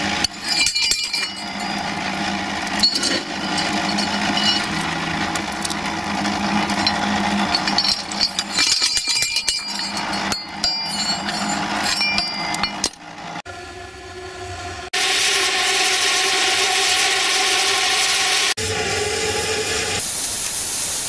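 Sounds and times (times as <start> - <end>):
shovel clinking and scraping: 0.0 - 13.0
steady background hum: 0.0 - 17.6.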